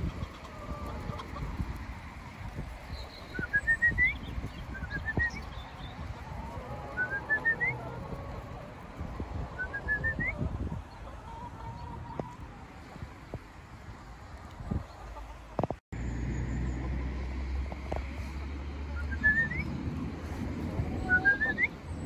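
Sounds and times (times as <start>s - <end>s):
hens calling: 0.0s - 1.6s
wind rumble on microphone: 0.0s - 15.8s, 16.4s - 22.0s
whistled call climbing in pitch: 3.3s - 5.9s, 6.9s - 7.8s, 9.6s - 10.4s, 18.9s - 19.7s, 21.0s - 21.8s.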